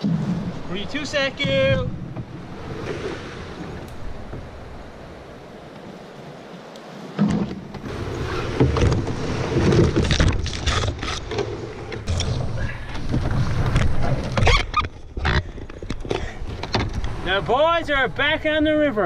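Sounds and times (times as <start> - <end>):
canoe hull scraping: 0.0 - 6.3, 7.0 - 19.0
knocks and rattles: 8.5 - 17.2.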